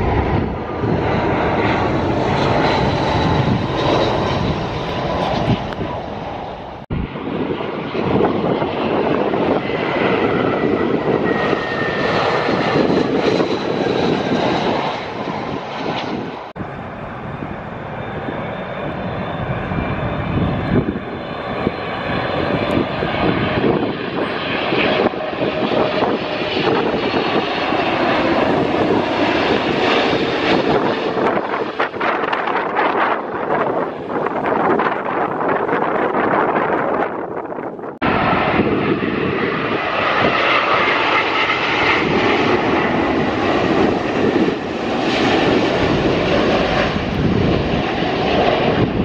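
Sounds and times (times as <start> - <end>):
jet airliner rumble and whine: 0.0 - 49.0.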